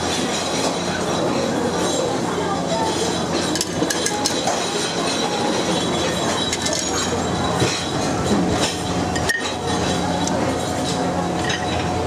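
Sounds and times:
dishes and utensils clinking: 0.0 - 12.0
restaurant crowd hum: 0.0 - 12.0.

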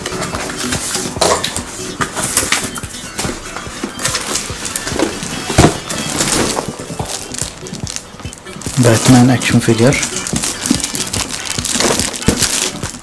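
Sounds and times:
cardboard flaps scraping and rustling: 3.3 - 8.0, 8.7 - 13.0.

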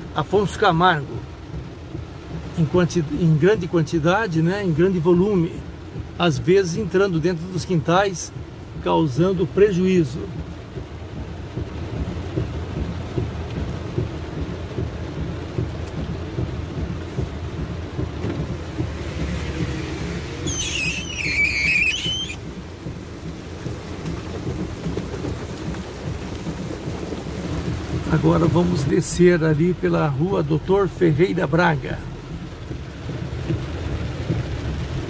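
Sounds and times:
car on wet road: 0.0 - 35.0
heavy rain on car roof: 0.0 - 35.0
high squeal: 20.0 - 22.4.

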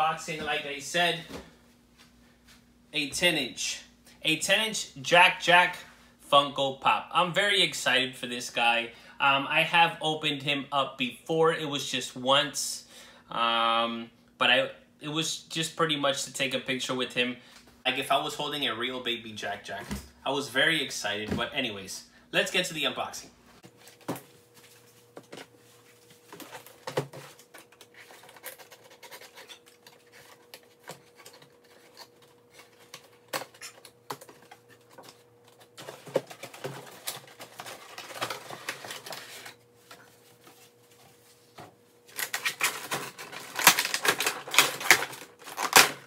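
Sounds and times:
plastic packaging crinkling: 26.1 - 39.6, 42.1 - 46.0
packaging clicks and rustles: 26.2 - 40.1, 42.1 - 46.0.

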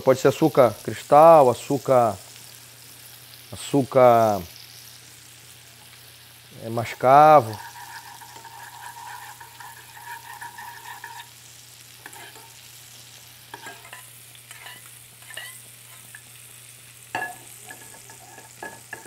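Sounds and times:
fish sizzling in oil: 0.0 - 19.0
metal spoon scraping a saucepan: 7.5 - 11.3, 12.0 - 12.6, 13.5 - 16.1, 17.2 - 19.0.

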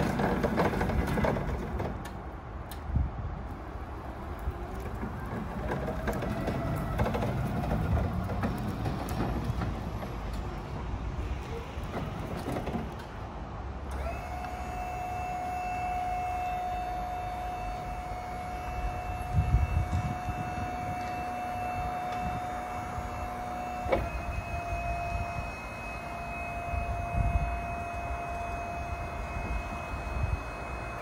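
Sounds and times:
pallet stacker drive rattling: 0.0 - 2.2, 4.5 - 10.6, 11.5 - 13.2
hydraulic pump whine: 0.0 - 3.0, 3.6 - 31.0
faint wavering motor whine: 13.9 - 31.0.

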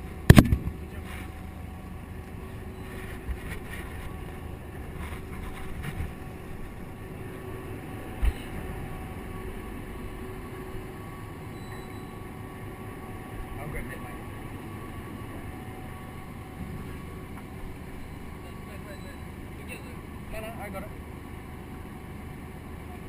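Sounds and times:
boat engine drone: 0.0 - 23.0.

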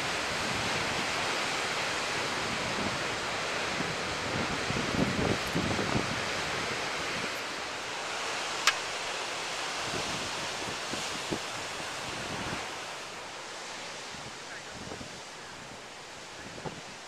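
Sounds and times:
ocean surf breaking over rocks: 0.0 - 17.0
wind buffeting microphone: 2.0 - 7.4, 9.7 - 12.9, 14.0 - 15.8.

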